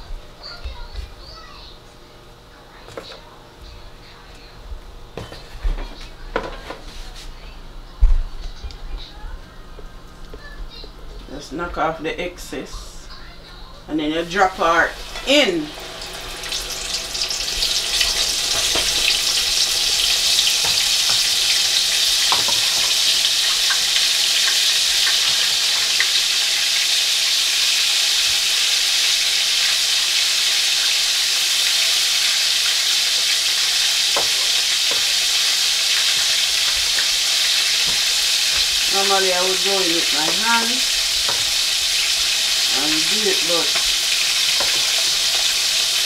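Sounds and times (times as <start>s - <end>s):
chicken sizzling in hot oil: 14.4s - 46.0s.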